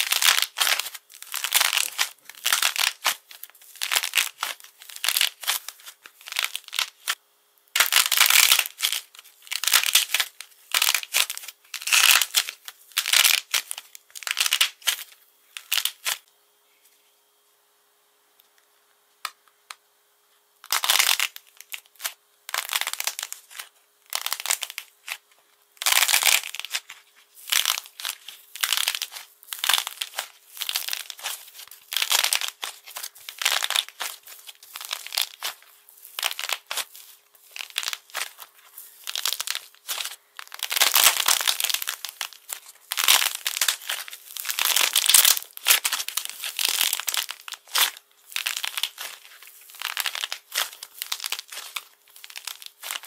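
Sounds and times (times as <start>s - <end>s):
clay coating crackling: 0.0s - 7.2s, 20.7s - 53.0s.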